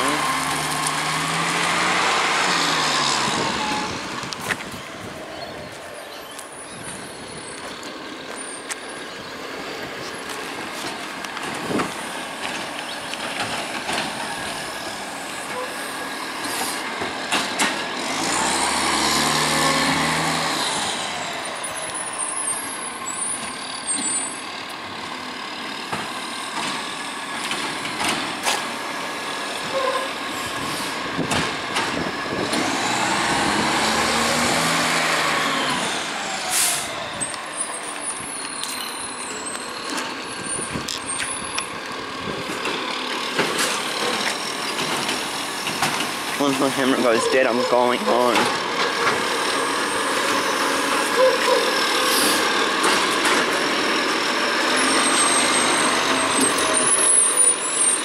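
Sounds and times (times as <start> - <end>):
garbage truck diesel engine: 0.0 - 58.0.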